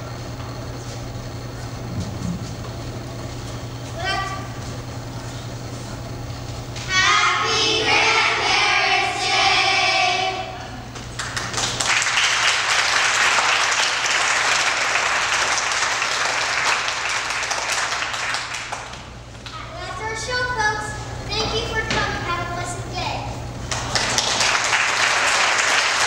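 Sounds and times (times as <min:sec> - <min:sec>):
children's choir singing: 0:06.9 - 0:10.8
audience applauding: 0:10.9 - 0:19.1, 0:23.6 - 0:26.0.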